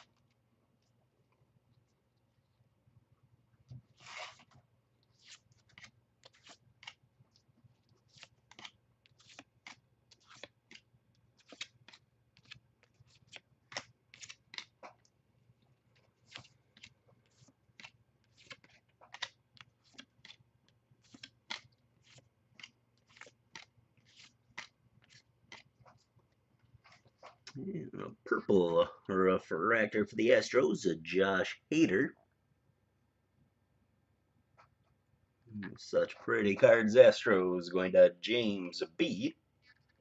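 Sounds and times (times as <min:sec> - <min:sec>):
cards flipping with papery swish: 0:03.8 - 0:15.1, 0:16.0 - 0:20.4, 0:21.0 - 0:26.1.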